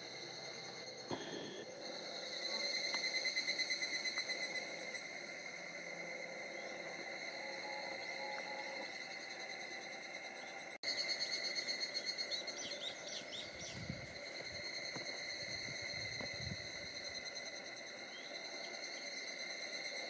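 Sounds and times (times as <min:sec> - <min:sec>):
cicadas droning: 0:00.0 - 0:20.0
rapidly pulsing insect call: 0:00.0 - 0:20.0
bird chirps: 0:11.2 - 0:14.0.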